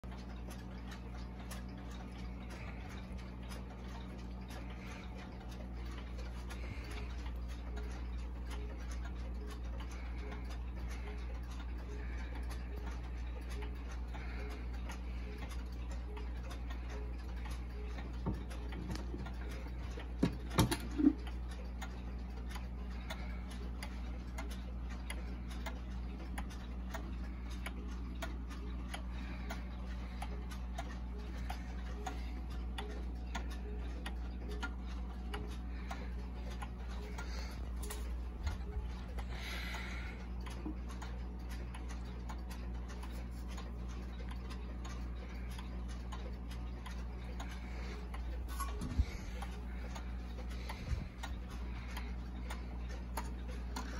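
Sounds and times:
wall clock ticking: 0.0 - 53.9.

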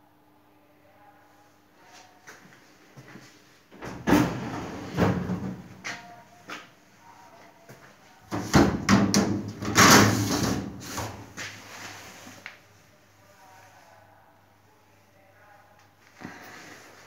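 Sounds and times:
metal hood sliding and clanking: 4.0 - 5.7, 9.6 - 10.7.

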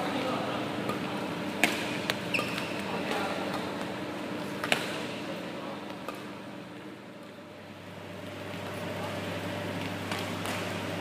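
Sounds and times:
racket striking shuttlecock: 1.6 - 2.8, 4.5 - 5.1, 9.8 - 10.8
shoe squeak on court: 2.3 - 2.9.

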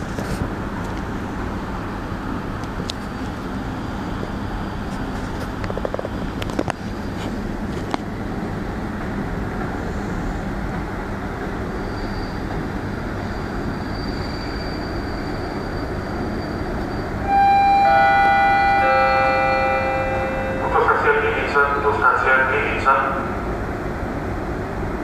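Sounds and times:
train engine rumbling: 0.0 - 25.0
station announcement chime: 17.2 - 23.3.

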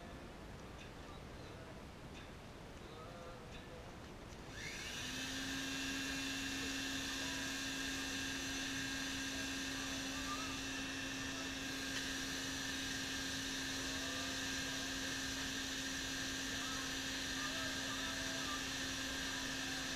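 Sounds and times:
electric blower humming: 4.5 - 19.9.

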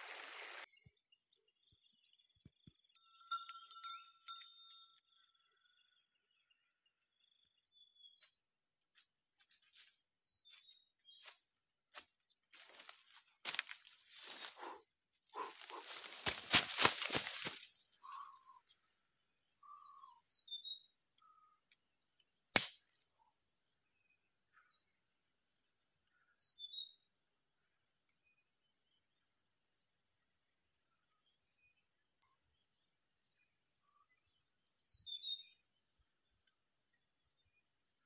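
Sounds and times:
insect drone: 5.0 - 38.0
bird chirps: 18.0 - 18.7, 19.6 - 21.7, 34.8 - 35.6
sharp click: 22.6 - 22.8.

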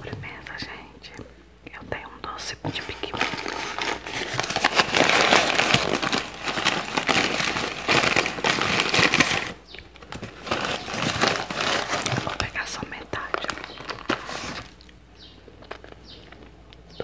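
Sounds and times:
paper crumpling: 2.7 - 14.9.

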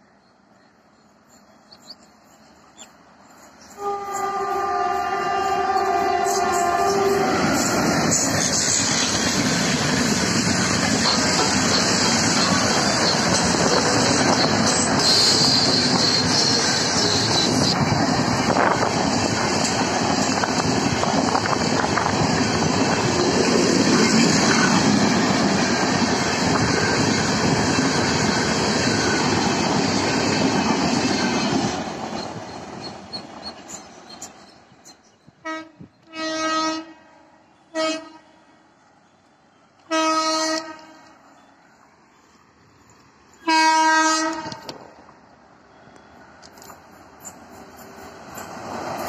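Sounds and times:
train wheels rumbling on rails: 1.3 - 36.2, 43.3 - 49.0
distant locomotive horn blasts: 3.7 - 7.9, 35.4 - 38.6, 39.8 - 41.2, 43.4 - 44.8.

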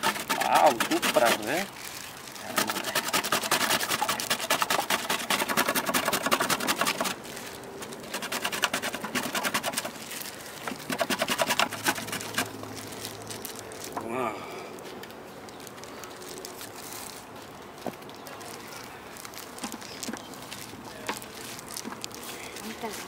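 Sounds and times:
banana rasping on grater: 0.0 - 12.6.

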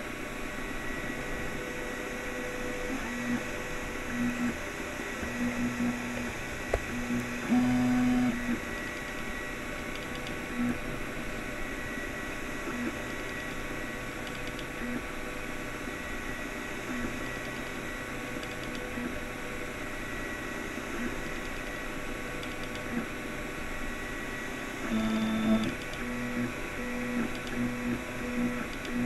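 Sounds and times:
printer fans humming: 0.0 - 29.0
stepper motor tones: 5.2 - 8.6, 24.8 - 29.0.

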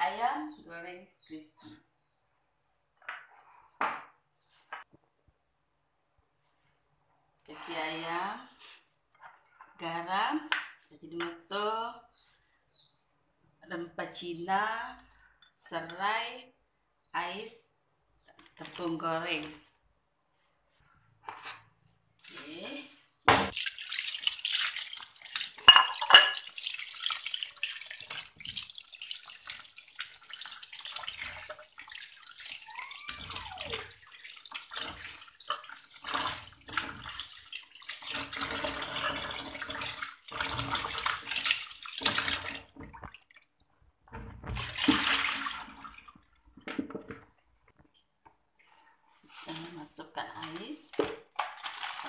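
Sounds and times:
water splashing in a basin: 22.2 - 47.4, 49.4 - 52.0.

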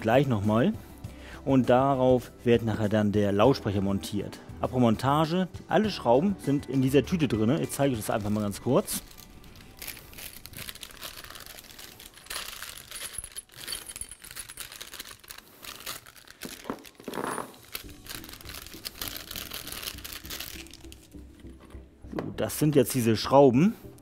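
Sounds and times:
plastic bag crinkling: 7.9 - 21.2
screws clinking on cardboard: 12.4 - 15.2.

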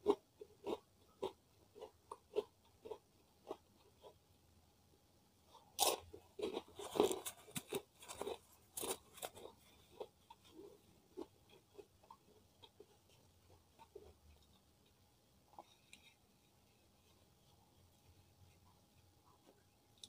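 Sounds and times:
crunching chews: 0.0 - 4.2, 5.6 - 14.6
cracker crunching: 5.8 - 12.9.

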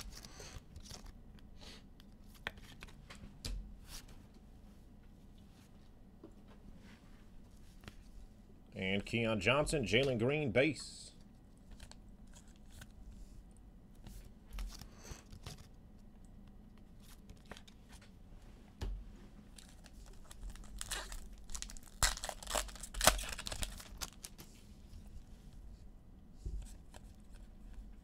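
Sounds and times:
cards being handled: 0.0 - 1.2, 2.0 - 3.2, 14.0 - 15.8
wrapper tearing and crinkling: 19.6 - 24.4.

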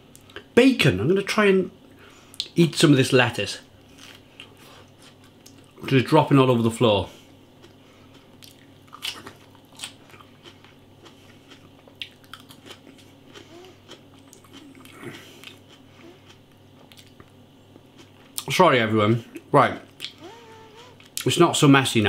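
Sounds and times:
person chewing food: 7.2 - 18.5.

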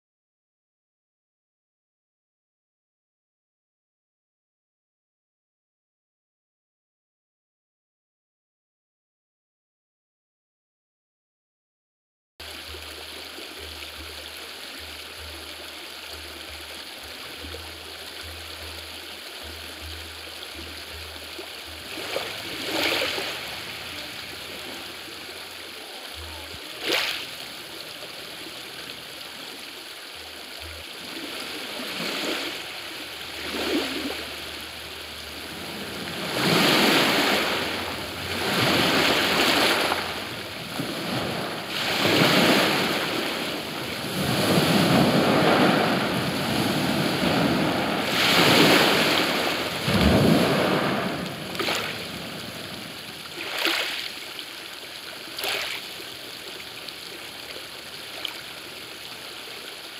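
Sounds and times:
faint steady hiss: 12.4 - 59.9
river water rushing in swells: 12.4 - 59.9.

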